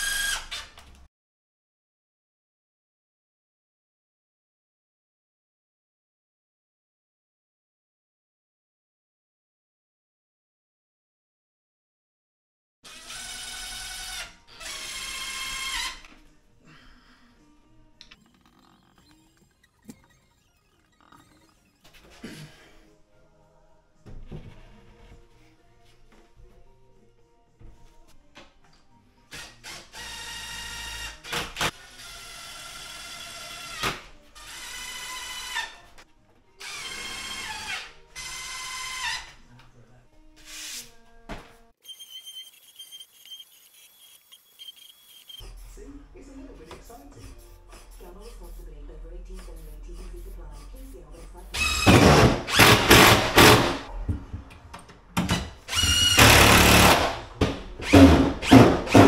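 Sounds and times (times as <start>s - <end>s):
drill driver motor whine: 18.2s - 21.8s, 41.8s - 45.4s, 55.7s - 57.0s.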